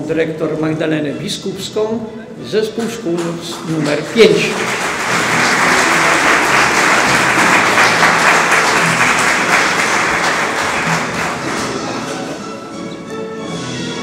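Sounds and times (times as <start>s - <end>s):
audience applauding: 3.2s - 12.6s.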